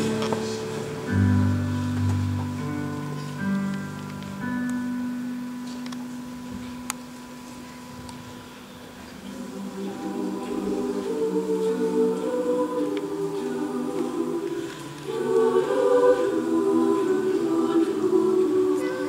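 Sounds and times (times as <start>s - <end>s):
choir singing in harmony: 0.0s - 2.0s, 9.2s - 19.0s.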